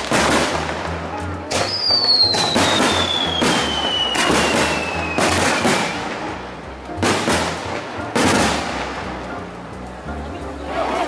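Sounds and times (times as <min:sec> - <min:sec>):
firework bangs echoing: 0:00.0 - 0:09.7
falling firework whistle: 0:01.5 - 0:06.3.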